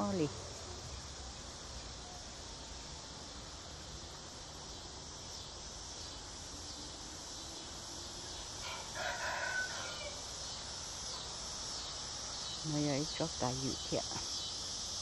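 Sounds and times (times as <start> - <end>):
insects droning: 0.0 - 15.0
rooster crowing: 8.6 - 10.4.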